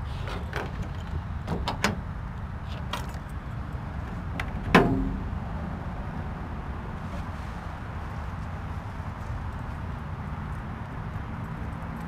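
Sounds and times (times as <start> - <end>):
steady low rumble: 0.8 - 11.4
truck door slamming: 1.4 - 2.1, 4.5 - 5.4.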